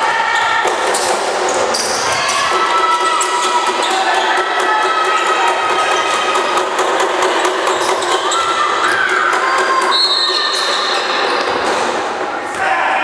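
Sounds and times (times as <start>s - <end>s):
crowd noise: 0.0s - 13.0s
basketball bouncing: 0.6s - 12.0s
sneakers squeaking on hardwood: 3.0s - 11.6s.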